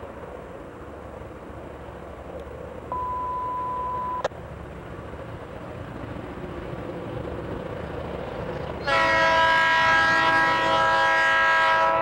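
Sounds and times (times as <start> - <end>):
background rumble and hiss: 0.0 - 8.8
electronic beep: 2.9 - 4.3.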